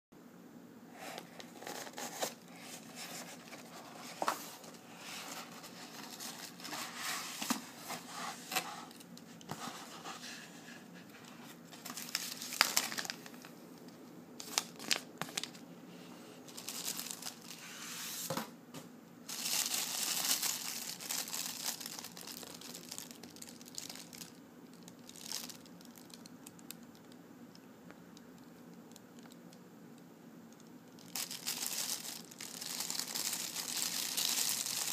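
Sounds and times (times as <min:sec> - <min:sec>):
plastic bag crinkling: 0:01.2 - 0:09.1, 0:11.8 - 0:13.6, 0:14.4 - 0:15.6, 0:16.5 - 0:17.6, 0:19.3 - 0:26.7, 0:31.0 - 0:34.9.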